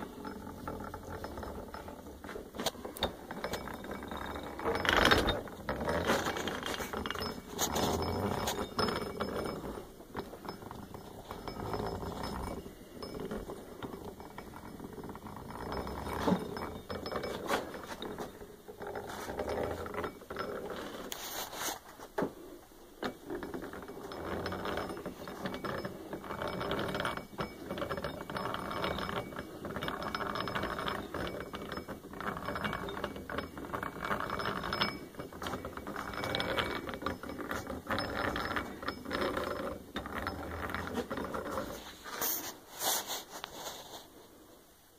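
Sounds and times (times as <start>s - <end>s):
grinding wheel spinning: 0.0s - 21.2s, 23.0s - 42.4s
hand-cranked gears clicking: 0.0s - 21.2s, 23.0s - 42.4s.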